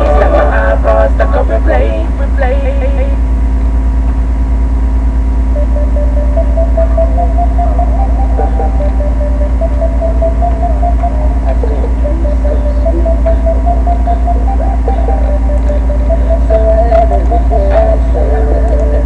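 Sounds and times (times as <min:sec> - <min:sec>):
low electrical hum with buzz: 0:00.0 - 0:19.0
faint wavering high tone: 0:05.4 - 0:19.0.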